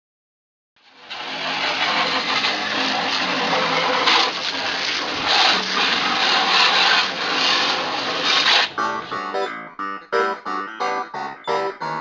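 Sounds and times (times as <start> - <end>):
hose spraying water on metal: 0.8 - 8.8.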